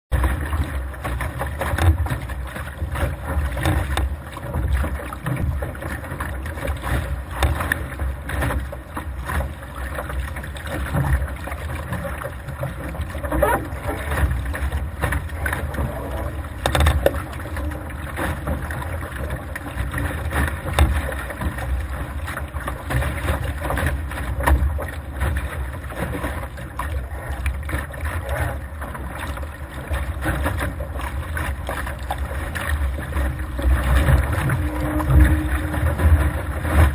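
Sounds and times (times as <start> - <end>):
water slapping against hull: 0.1 - 36.9
wind buffeting microphone: 32.6 - 36.9.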